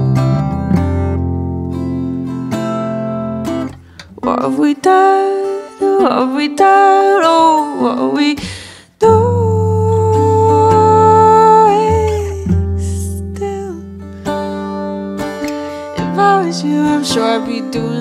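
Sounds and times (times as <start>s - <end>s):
acoustic guitar strumming: 0.0s - 18.0s
woman singing: 4.1s - 14.1s, 15.8s - 18.0s.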